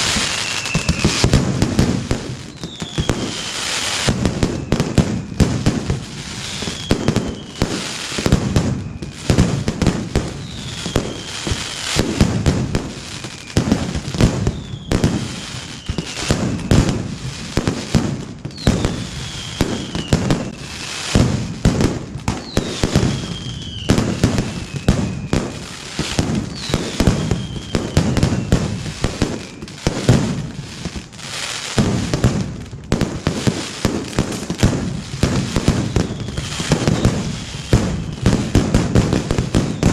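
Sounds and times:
falling whistle: 0:00.0 - 0:01.3, 0:02.5 - 0:05.6, 0:06.4 - 0:07.8, 0:10.4 - 0:11.9, 0:14.5 - 0:16.7, 0:18.5 - 0:21.0, 0:22.4 - 0:25.4, 0:26.5 - 0:28.6
firecrackers banging: 0:00.0 - 0:39.9.

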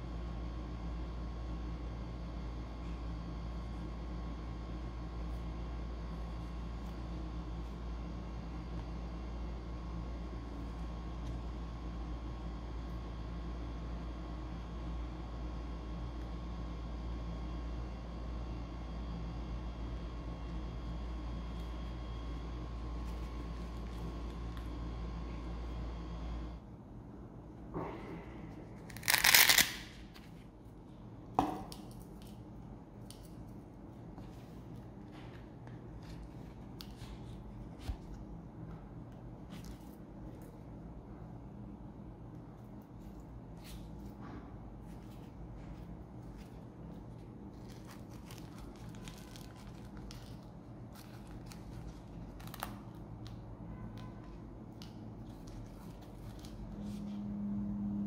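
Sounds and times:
hook-and-loop fastener ripping: 0:28.9 - 0:30.0.

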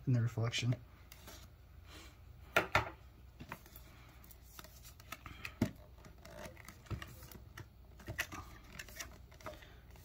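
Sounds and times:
box rustling: 0:03.6 - 0:10.0.

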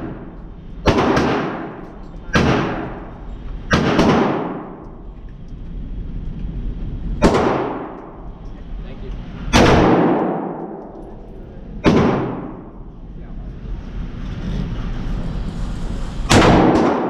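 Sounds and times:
rifle shots echoing indoors: 0:00.0 - 0:05.1, 0:07.2 - 0:08.3, 0:09.5 - 0:12.9, 0:16.3 - 0:17.0.

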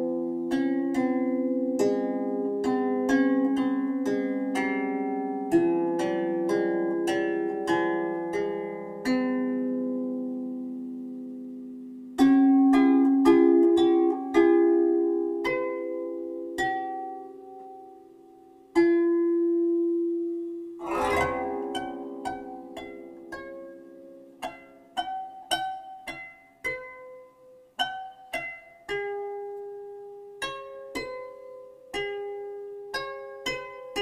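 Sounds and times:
plucked string melody: 0:00.0 - 0:34.0.

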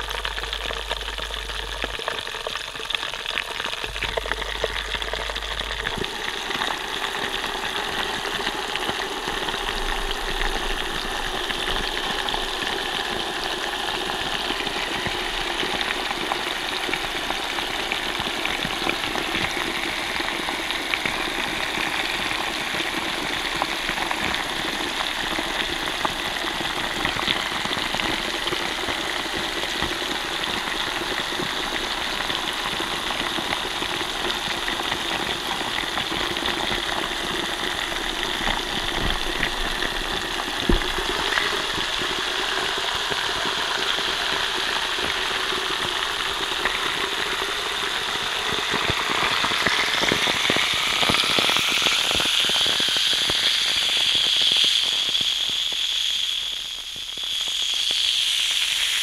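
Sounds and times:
tablet fizzing in water: 0:31.1 - 0:59.0
sharp bubble pop: 0:40.6 - 0:41.9.

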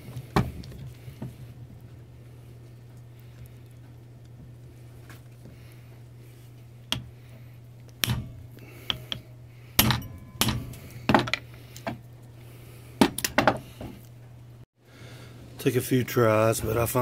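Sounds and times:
hammer striking impact driver: 0:08.0 - 0:09.2.

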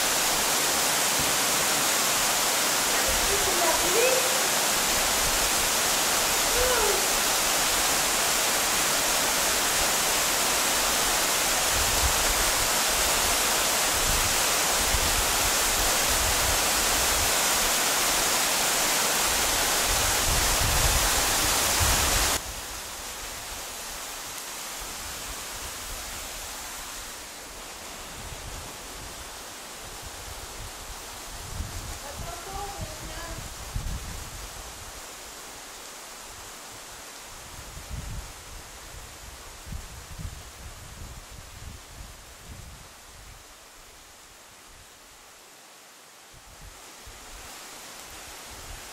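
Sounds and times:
waterfall pouring into pool: 0:00.0 - 0:22.4.

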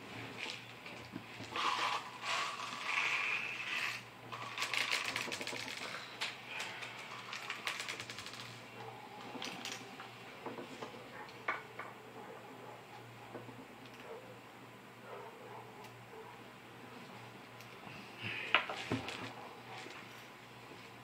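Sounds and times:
shotgun shells clicking and rattling: 0:04.3 - 0:08.6.

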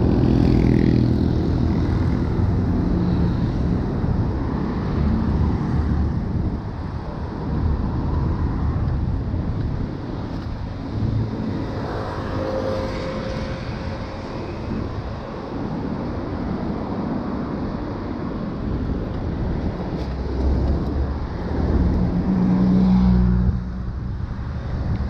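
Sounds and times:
street traffic rumble: 0:00.0 - 0:25.0
passing vehicle engine: 0:10.1 - 0:17.4, 0:19.8 - 0:25.0.

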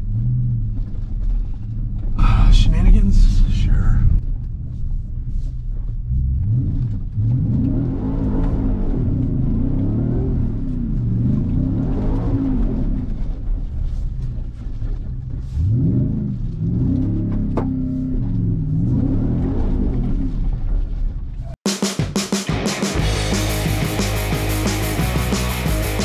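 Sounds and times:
car engine revving: 0:06.0 - 0:13.6, 0:15.5 - 0:20.8, 0:22.7 - 0:26.0.

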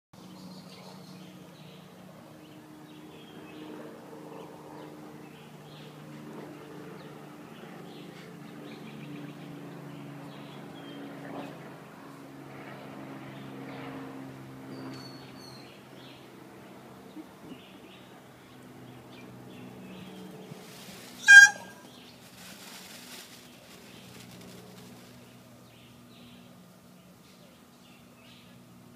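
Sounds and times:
low mechanical hum: 0:00.2 - 0:28.9
small birds chirping: 0:17.1 - 0:28.8.

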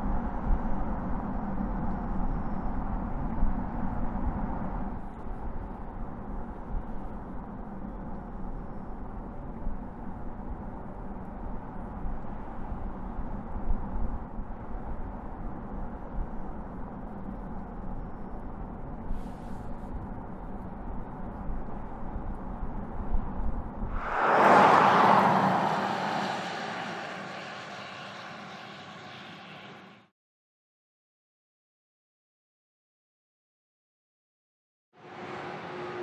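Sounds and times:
tyre and road noise: 0:23.9 - 0:30.0.

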